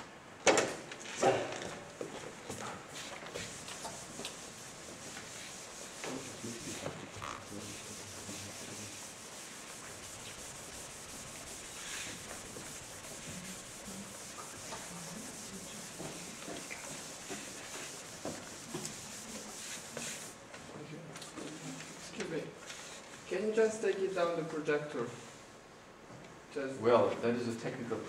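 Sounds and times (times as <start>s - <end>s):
sponge wiping chalkboard: 2.9s - 20.4s.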